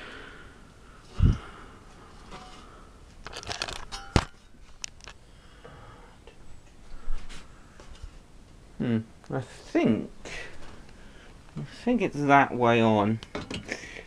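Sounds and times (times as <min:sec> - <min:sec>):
handling rustling and clicks: 0:03.2 - 0:05.2.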